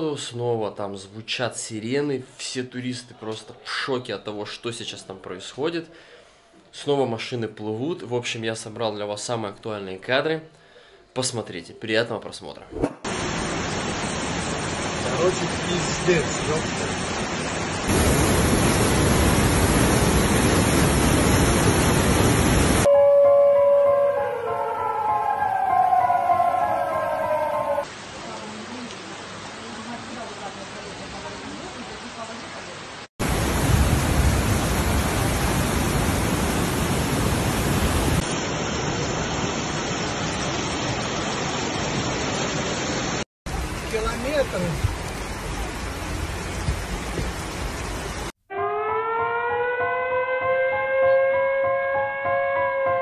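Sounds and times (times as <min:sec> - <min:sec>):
floodwater rushing: 0:13.1 - 0:22.9, 0:24.9 - 0:48.3.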